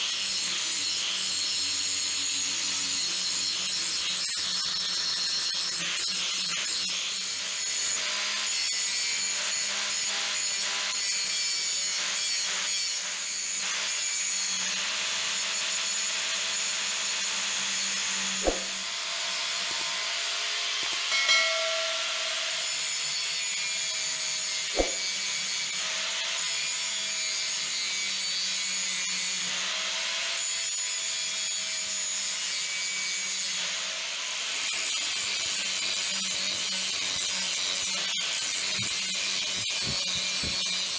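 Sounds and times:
angle grinder grinding steel: 0.0s - 28.7s, 34.5s - 40.9s
sharp knocks: 18.4s - 18.8s, 24.8s - 25.0s.

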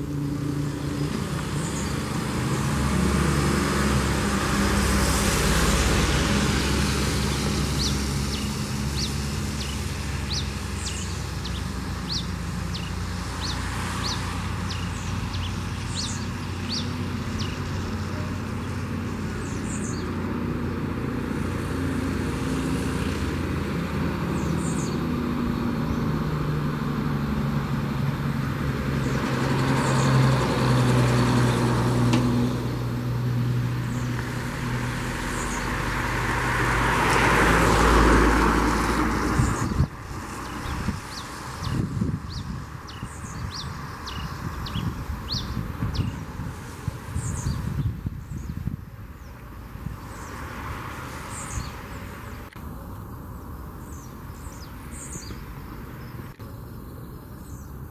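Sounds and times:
low rumble of road traffic: 0.0s - 57.9s.

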